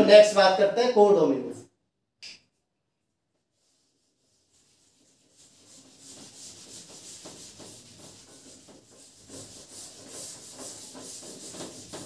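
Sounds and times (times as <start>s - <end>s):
rubbing strokes on writing board: 3.5s - 12.0s.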